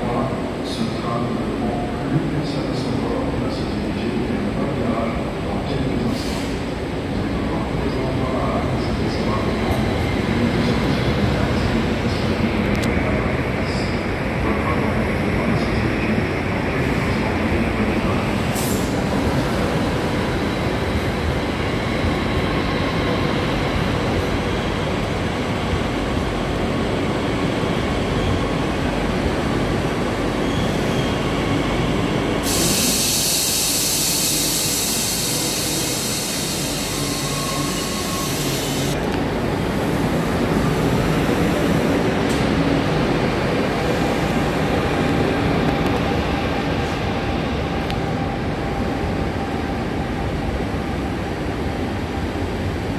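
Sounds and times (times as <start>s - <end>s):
loud steady hiss: 32.4s - 39.0s.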